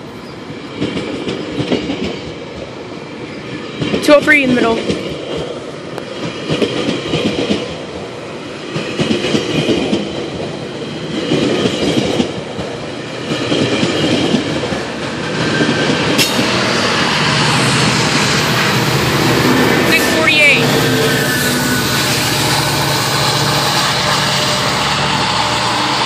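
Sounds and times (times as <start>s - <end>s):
diesel locomotive engine drone: 0.0s - 26.0s
train wheels clattering over rail joints: 8.7s - 19.9s.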